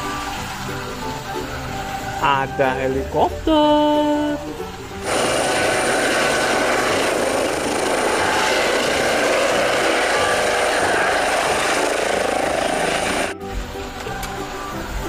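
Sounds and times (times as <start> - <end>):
high turbine whine: 4.4 - 15.0
helicopter rotor noise: 5.0 - 13.4.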